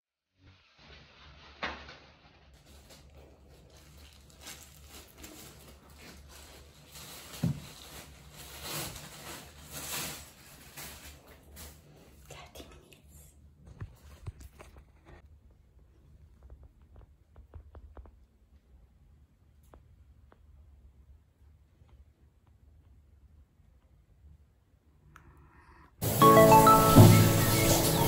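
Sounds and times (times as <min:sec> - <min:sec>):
plastic glove rustling: 0:00.5 - 0:12.2.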